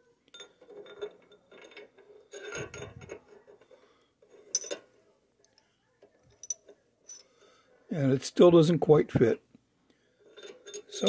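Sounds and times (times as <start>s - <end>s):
metal clinking and scraping: 0.0s - 7.6s, 10.0s - 11.0s.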